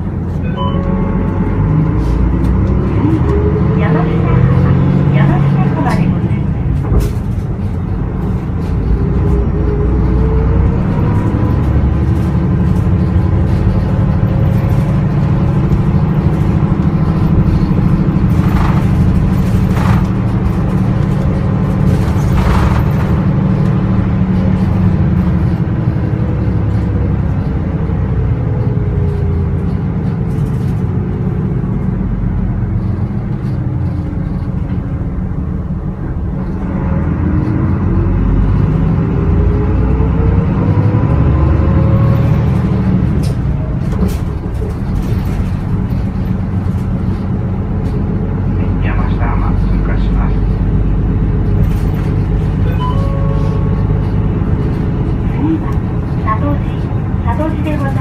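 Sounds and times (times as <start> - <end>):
bus diesel engine under load: 0.0 - 58.0
short knocks and rattles: 11.6 - 25.8.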